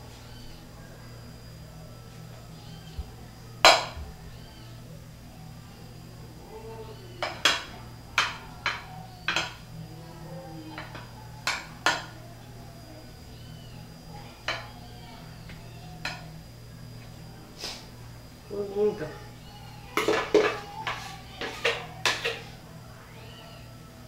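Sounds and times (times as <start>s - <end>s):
steady low hum: 0.0s - 24.0s
spoon knocking against glass dish: 7.2s - 9.6s.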